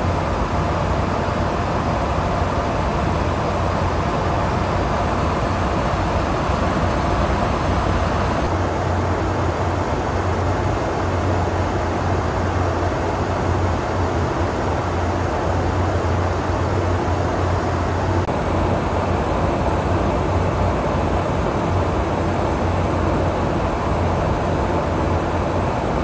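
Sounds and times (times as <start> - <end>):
airflow rushing: 0.0 - 8.5, 18.2 - 26.0
aircraft low hum: 0.0 - 8.6, 11.7 - 26.0.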